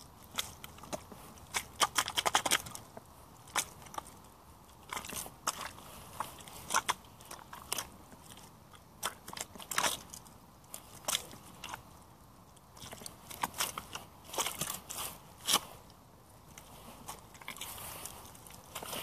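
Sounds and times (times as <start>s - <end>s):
boots squelching in mud: 4.8s - 11.9s, 12.8s - 15.8s, 16.5s - 19.0s.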